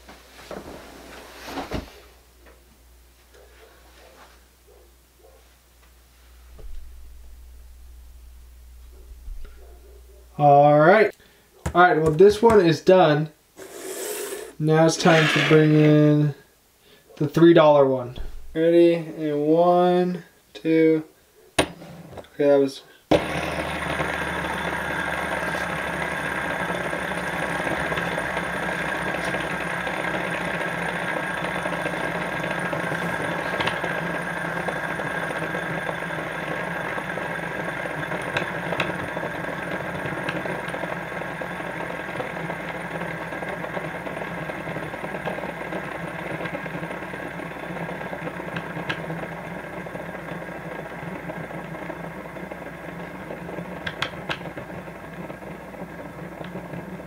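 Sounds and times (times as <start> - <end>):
fidget spinner whirring: 13.6 - 15.9, 23.3 - 57.0.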